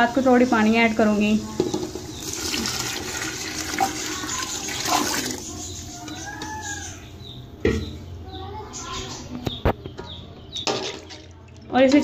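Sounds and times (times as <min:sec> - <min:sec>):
water pouring into a pot: 0:02.1 - 0:05.5
water gurgling: 0:02.3 - 0:05.5.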